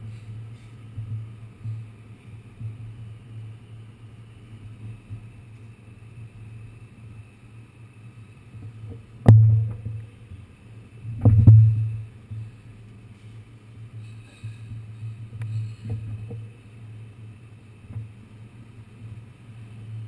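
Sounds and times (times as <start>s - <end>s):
subway car rumbling: 0.0s - 9.0s.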